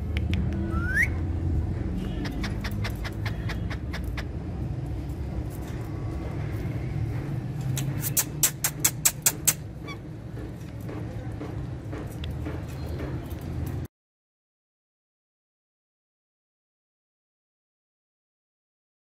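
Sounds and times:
parrot clicks: 0:07.8 - 0:09.6.

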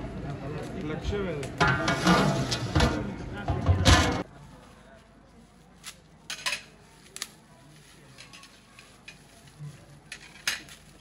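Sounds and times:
metal utensils clinking on pots: 0:01.6 - 0:04.3, 0:06.3 - 0:06.8, 0:10.1 - 0:11.0.

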